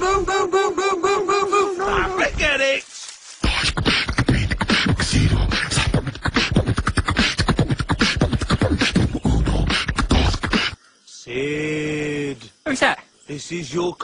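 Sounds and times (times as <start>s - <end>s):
beatboxing: 3.4s - 10.8s.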